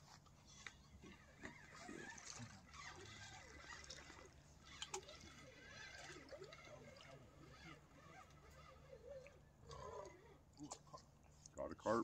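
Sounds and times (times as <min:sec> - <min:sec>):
fish splashing in water: 0:01.5 - 0:10.9.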